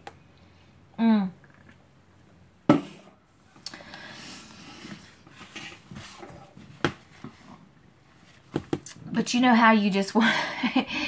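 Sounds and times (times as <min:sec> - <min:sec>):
faint handling and shuffling: 0:04.3 - 0:08.8.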